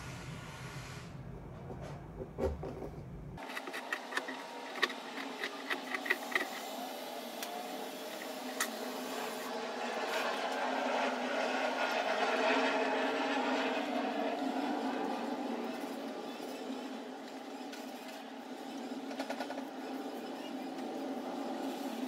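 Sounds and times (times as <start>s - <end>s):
hiss: 0.0s - 1.2s.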